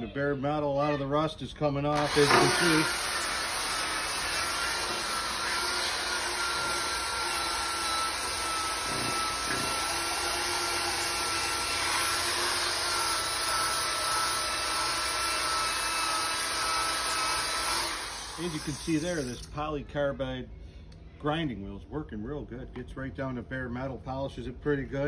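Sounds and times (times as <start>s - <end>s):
abrasive disc grinding metal: 2.0s - 12.3s
drill motor whine: 2.0s - 19.5s.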